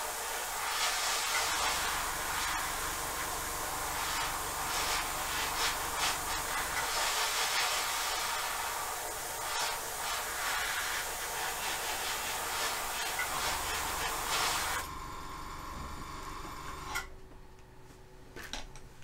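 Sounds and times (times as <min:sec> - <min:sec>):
steady hiss: 0:00.0 - 0:14.8
tool scrubbing paint: 0:04.0 - 0:08.6, 0:09.4 - 0:14.8.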